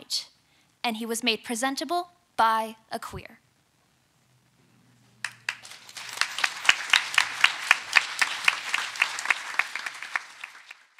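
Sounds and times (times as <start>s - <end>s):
audience applauding: 5.2s - 10.9s
person clapping close to microphone: 5.2s - 10.9s.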